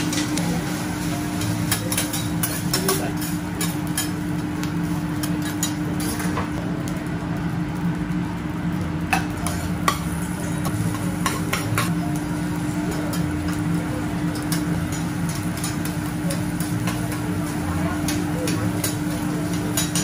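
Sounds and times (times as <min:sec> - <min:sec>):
food sizzling: 0:00.0 - 0:20.0
spatula tapping and scraping griddle: 0:01.1 - 0:06.5, 0:09.1 - 0:12.0, 0:14.3 - 0:20.0.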